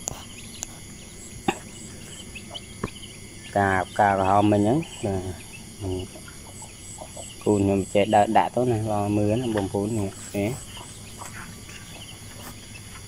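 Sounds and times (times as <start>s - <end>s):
insects chirping: 0.0s - 13.0s
man speaking: 3.5s - 6.1s, 7.4s - 10.6s.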